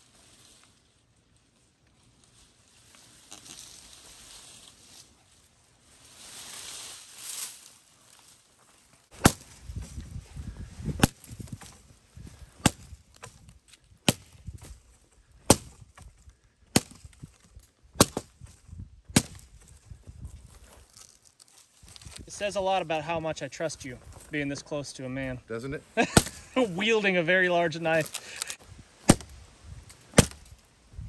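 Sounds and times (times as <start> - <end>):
blade chopping into a log: 9.2 - 9.9, 11.0 - 11.8, 12.6 - 14.8, 15.5 - 16.0, 16.7 - 17.2, 18.0 - 18.4, 19.1 - 19.6, 26.2 - 26.4, 28.4 - 29.4, 30.1 - 30.6.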